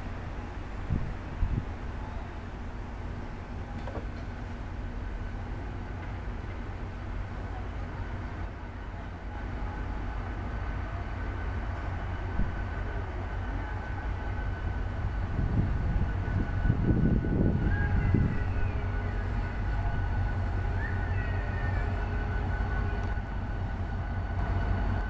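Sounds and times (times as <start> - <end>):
locomotive engine rumbling: 0.0 - 25.0.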